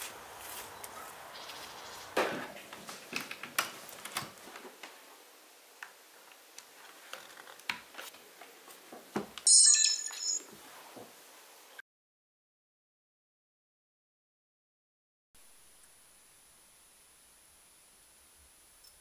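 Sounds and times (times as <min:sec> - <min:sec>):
bright electronic chime: 0:09.5 - 0:10.5.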